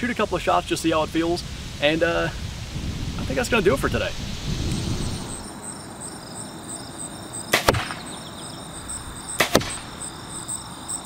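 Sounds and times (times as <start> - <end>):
insects chirping: 0.2 - 11.0
sharp double knock: 7.5 - 8.1, 9.4 - 9.9.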